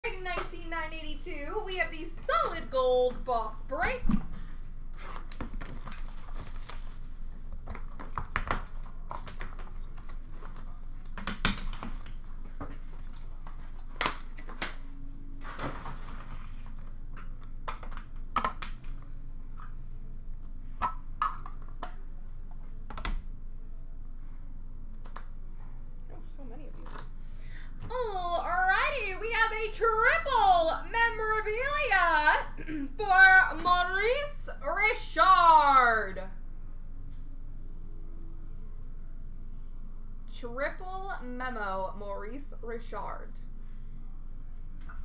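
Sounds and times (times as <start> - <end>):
cardboard and cards rustling: 3.9 - 14.8.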